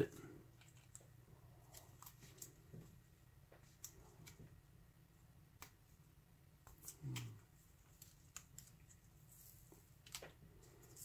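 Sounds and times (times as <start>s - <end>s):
tape peeling clicks and crinkles: 6.6s - 9.1s, 9.8s - 11.0s.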